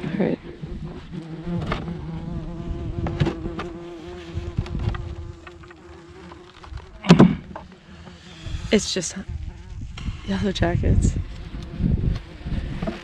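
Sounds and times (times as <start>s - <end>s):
wasps buzzing: 1.1s - 12.4s
knocks on wooden hive box: 7.0s - 7.7s.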